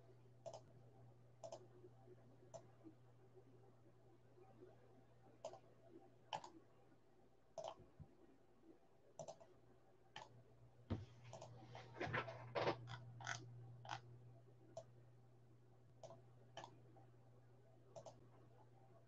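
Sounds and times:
low electrical hum: 0.0 - 19.0
sharp computer clicks: 1.4 - 1.7, 6.3 - 6.6, 7.6 - 7.8, 9.2 - 9.5, 18.0 - 18.2.

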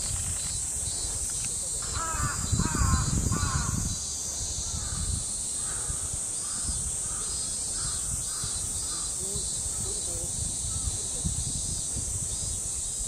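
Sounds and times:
crows cawing: 1.8 - 3.9, 4.7 - 9.2.

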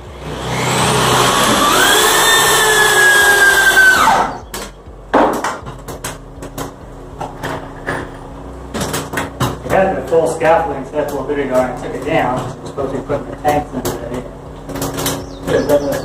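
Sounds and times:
power drill driving a screw: 0.1 - 4.5.

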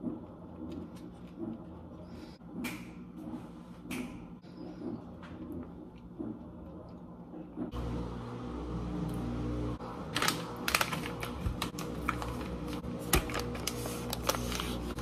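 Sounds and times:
plastic pouch crinkling: 10.1 - 15.0.

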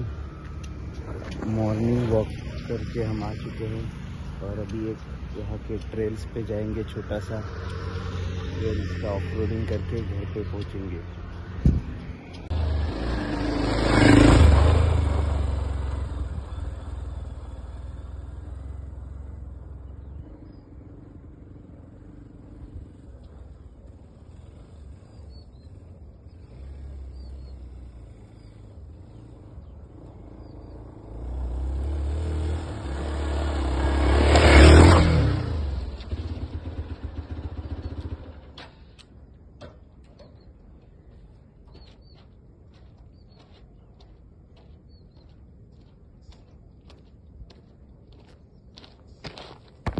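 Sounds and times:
motorcycle engine revving past: 6.6 - 39.0.

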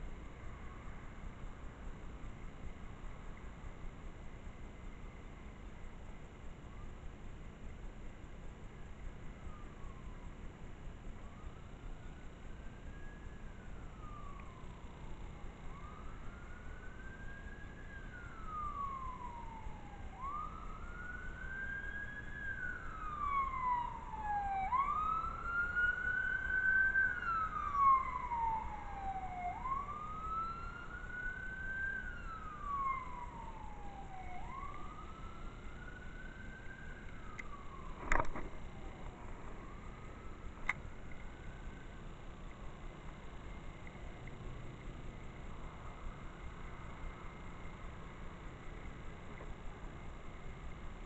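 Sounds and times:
emergency siren wailing: 9.4 - 10.5, 11.1 - 40.6.

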